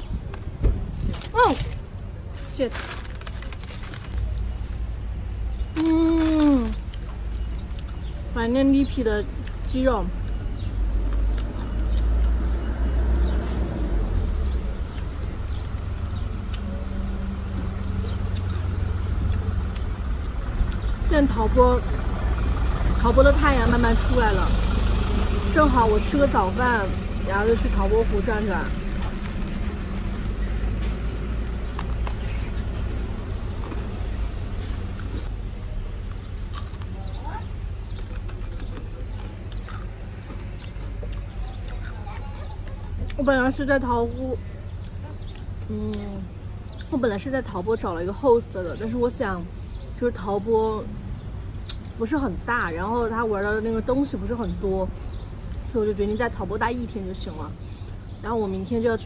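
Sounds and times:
vehicle engine: 0:00.0 - 0:46.8
road traffic rumble: 0:00.0 - 0:59.0.

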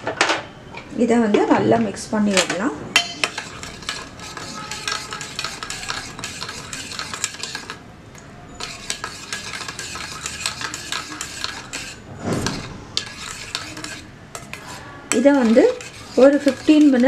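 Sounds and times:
spoon stirring in steel bowl: 0:02.3 - 0:07.8, 0:08.5 - 0:17.0.

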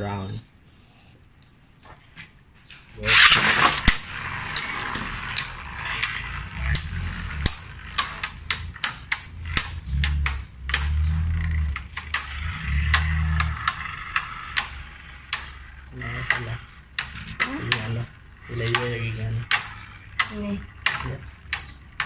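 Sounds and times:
low hum: 0:00.0 - 0:22.0
spinning tops whirring: 0:03.0 - 0:22.0
plastic clacks of tops colliding: 0:03.2 - 0:22.0.

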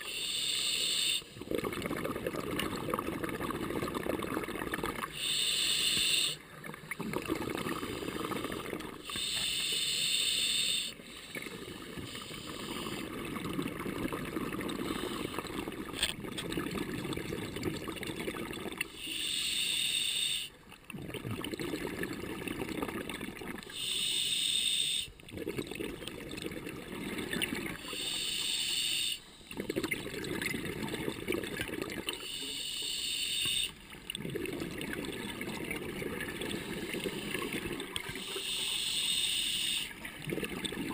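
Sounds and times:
regulator hissing inhalations: 0:00.0 - 0:01.4, 0:05.1 - 0:06.4, 0:09.0 - 0:13.0, 0:14.8 - 0:15.5, 0:18.9 - 0:20.6, 0:23.7 - 0:25.2, 0:27.8 - 0:29.6, 0:32.2 - 0:33.8, 0:38.1 - 0:40.0
exhaled bubbles gurgling: 0:01.2 - 0:19.8, 0:20.4 - 0:24.2, 0:24.9 - 0:40.9.

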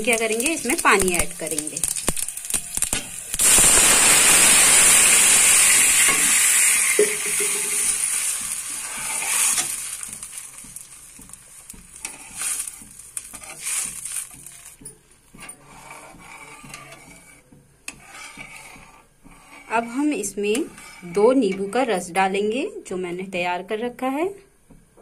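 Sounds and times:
water hissing in hot oil: 0:00.0 - 0:14.8
spoon stirring a pan: 0:06.0 - 0:22.1.

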